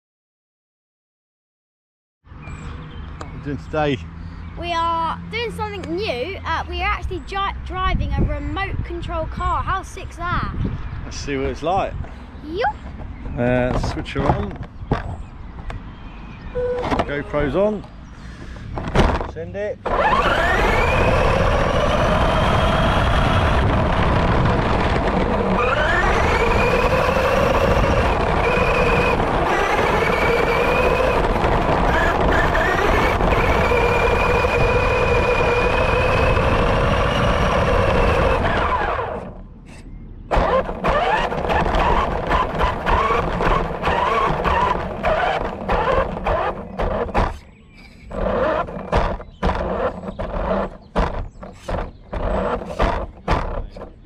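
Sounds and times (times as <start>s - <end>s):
wind and tyres rushing over grass: 5.6s - 54.0s
chassis knocking and rattling: 18.6s - 21.5s, 40.3s - 47.5s, 48.1s - 54.0s
toy truck electric motor whine: 19.8s - 39.4s, 40.3s - 47.4s, 48.0s - 54.0s.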